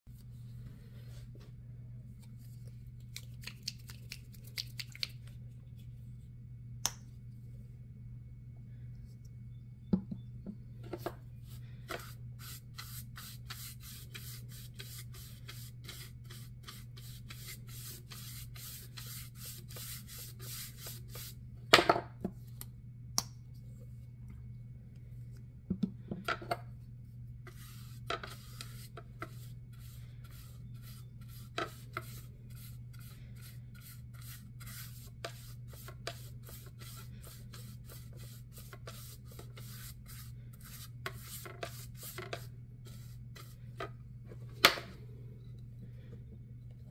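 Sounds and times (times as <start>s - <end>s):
low steady hum: 0.1s - 46.9s
paintbrush scraping on wood: 11.5s - 21.4s, 27.5s - 43.9s.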